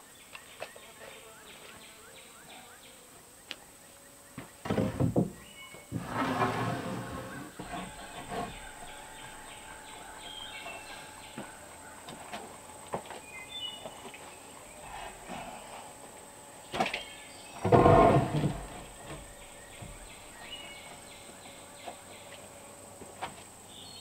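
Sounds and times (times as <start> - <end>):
birds chirping: 0.0 - 24.0
wooden boards knocking and thudding: 4.4 - 9.5, 17.6 - 20.2
wooden boards scraping: 4.6 - 13.0, 17.6 - 20.5.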